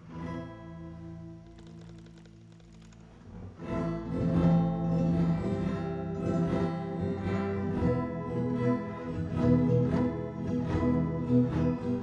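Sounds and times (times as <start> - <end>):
plucked guitar notes: 0.0 - 12.0.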